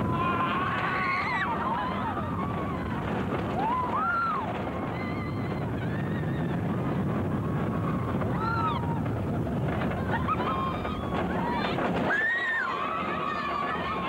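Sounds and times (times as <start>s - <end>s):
riders screaming: 0.0s - 6.8s, 7.8s - 9.1s, 10.1s - 14.0s
roller coaster train roaring: 0.0s - 14.0s.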